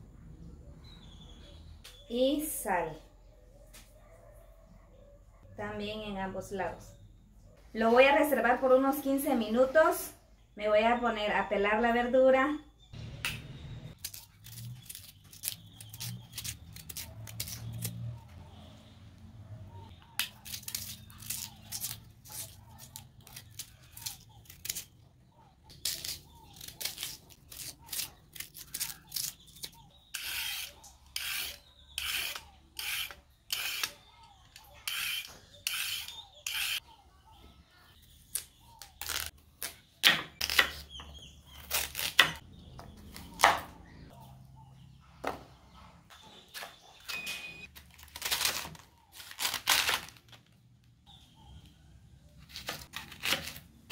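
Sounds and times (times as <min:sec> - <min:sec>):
knife cutting cabbage: 0:14.0 - 0:18.1, 0:20.2 - 0:25.0, 0:25.7 - 0:34.0, 0:41.6 - 0:42.4, 0:52.5 - 0:53.9
knife scraping vegetable skin: 0:14.0 - 0:18.1, 0:20.2 - 0:25.0, 0:25.7 - 0:34.0, 0:41.5 - 0:42.4, 0:52.4 - 0:53.9
vegetable peeler stripping carrot: 0:14.0 - 0:18.1, 0:20.2 - 0:25.0, 0:25.7 - 0:34.0, 0:41.5 - 0:42.4.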